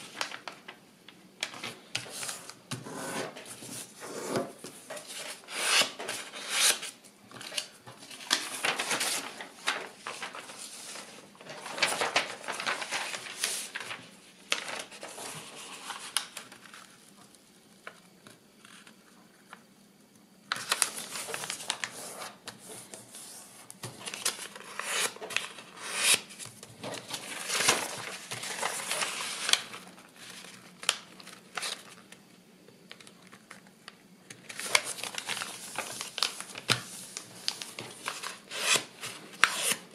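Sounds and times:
paper rustling and crinkling: 0:00.0 - 0:00.8, 0:01.4 - 0:18.0, 0:20.5 - 0:32.2, 0:32.8 - 0:39.9.

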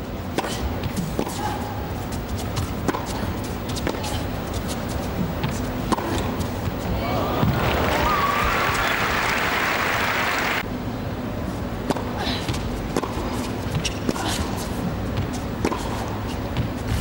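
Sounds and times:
faint crowd background: 0:04.2 - 0:11.8
tennis ball bouncing: 0:05.2 - 0:08.8, 0:11.8 - 0:14.2, 0:15.1 - 0:16.8
crowd applauding: 0:07.0 - 0:10.6.

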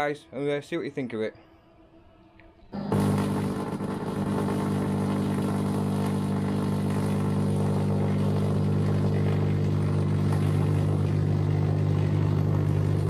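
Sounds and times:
tesla coil sparks buzzing: 0:02.8 - 0:13.0.

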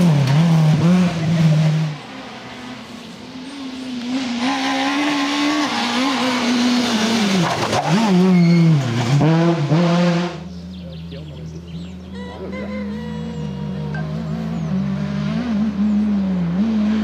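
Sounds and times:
rally car engine at high revs: 0:00.0 - 0:17.0.

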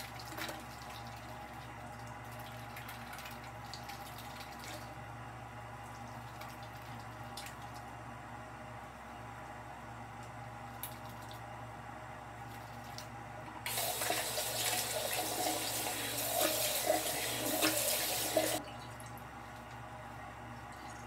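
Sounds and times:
water running into sink basin: 0:13.7 - 0:19.0.

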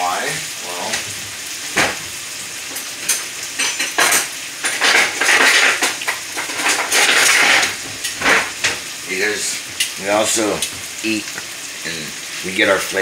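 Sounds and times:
steak frying in a pan: 0:00.0 - 0:13.0
metal utensils clattering: 0:02.6 - 0:08.9.

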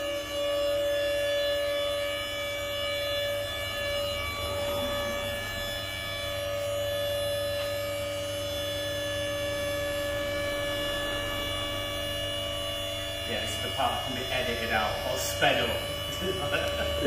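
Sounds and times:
electric motor whining hum: 0:00.0 - 0:17.0.

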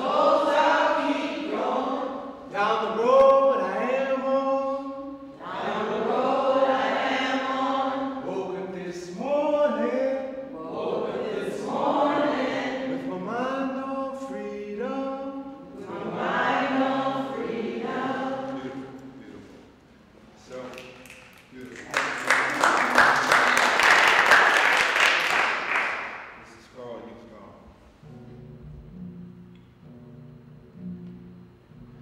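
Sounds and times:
group of voices singing: 0:00.0 - 0:19.4
man singing: 0:02.5 - 0:05.1, 0:08.2 - 0:10.4, 0:13.0 - 0:15.5.

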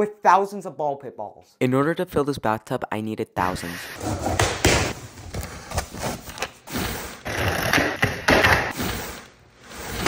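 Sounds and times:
knocks and thumps of boxes: 0:04.0 - 0:06.3.

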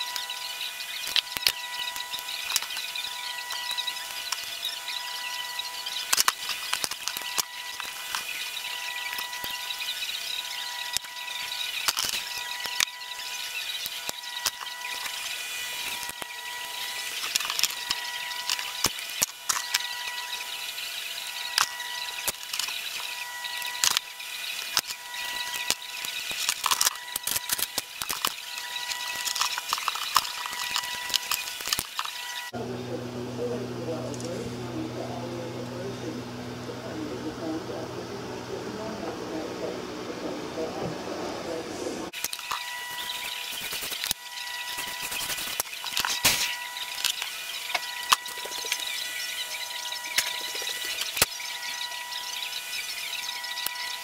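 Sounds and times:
high hum: 0:00.0 - 0:54.0
plastic and metal parts clicking: 0:06.0 - 0:08.3, 0:11.8 - 0:13.0, 0:17.2 - 0:19.9, 0:21.6 - 0:32.3.

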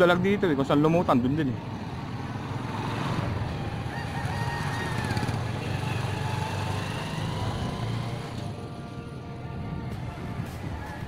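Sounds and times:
distant rooster crowing: 0:03.5 - 0:05.9.

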